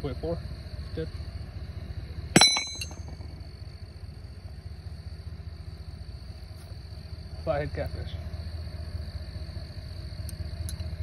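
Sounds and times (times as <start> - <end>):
cricket trill: 0.0 - 11.0
light metal clinks: 2.3 - 3.4
metal hook clanging: 2.4 - 3.2.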